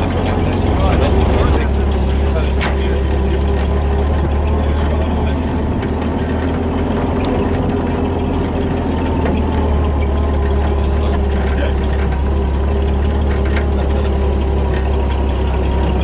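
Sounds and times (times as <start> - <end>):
vehicle engine droning: 0.0 - 16.0.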